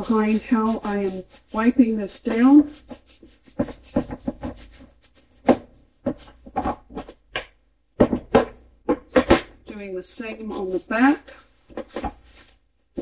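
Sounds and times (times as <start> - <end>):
wipe rubbing wooden door: 0.0 - 6.7
wooden door knocking on table: 8.0 - 9.5.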